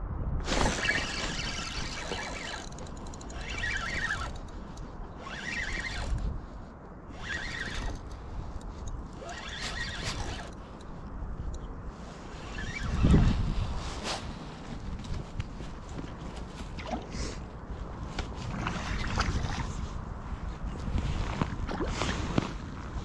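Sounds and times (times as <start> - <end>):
low rumble of wind or water: 0.0 - 23.0
fishing reel being cranked: 0.5 - 6.4, 7.1 - 11.7, 12.4 - 13.3.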